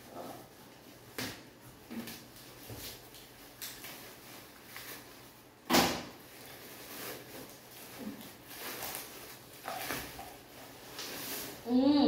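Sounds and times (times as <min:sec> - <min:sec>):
plastic bags crinkling: 0:02.1 - 0:05.6, 0:06.2 - 0:11.7.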